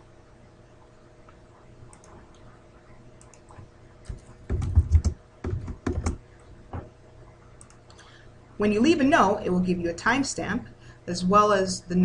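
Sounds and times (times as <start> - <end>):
typing on computer keyboard: 3.2 - 6.2.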